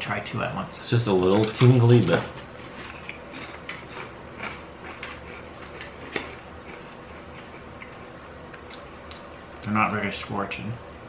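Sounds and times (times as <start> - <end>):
low room hum: 0.0 - 11.0
crisps crunching: 1.2 - 9.3.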